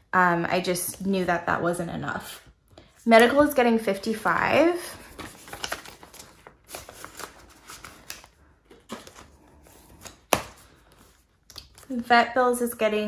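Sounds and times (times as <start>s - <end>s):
banknotes flicking and rustling: 5.0s - 11.9s
plastic envelope crinkling: 5.0s - 11.9s.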